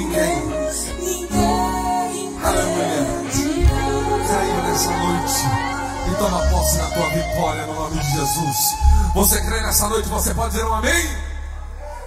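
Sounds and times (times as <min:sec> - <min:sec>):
church worship music: 0:00.0 - 0:12.0
man speaking through microphone: 0:02.5 - 0:11.6.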